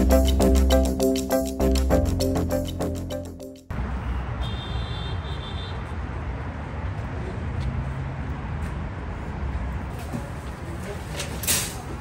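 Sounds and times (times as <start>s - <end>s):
traffic rumble: 3.7s - 12.0s.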